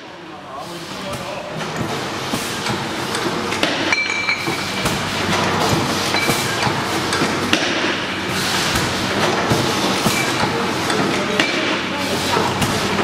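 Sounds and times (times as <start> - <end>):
machine humming: 0.0 - 13.0
glass bottles clinking: 3.9 - 4.7, 6.1 - 6.4.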